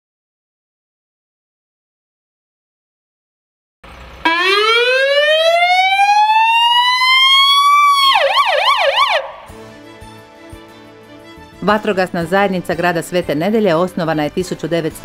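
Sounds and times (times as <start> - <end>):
fire engine siren wailing and yelping: 4.2 - 9.5.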